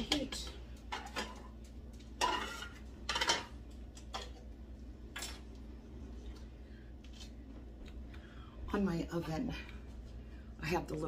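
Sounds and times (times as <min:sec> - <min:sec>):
spoon scraping in a pot: 0:02.2 - 0:03.5.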